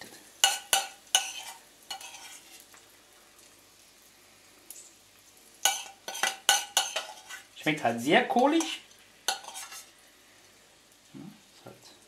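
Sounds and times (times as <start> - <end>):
spoon clinking on pan and plate: 0.4 - 2.4, 5.6 - 7.4, 8.6 - 9.9.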